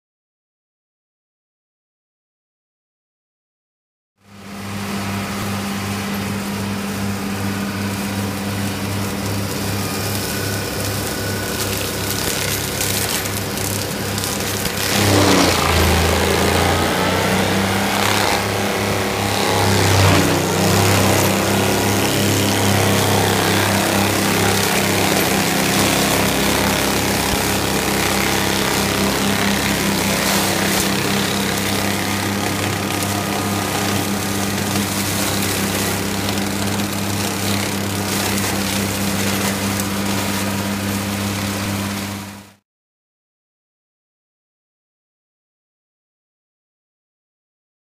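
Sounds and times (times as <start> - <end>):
tractor engine running: 4.7 - 42.2.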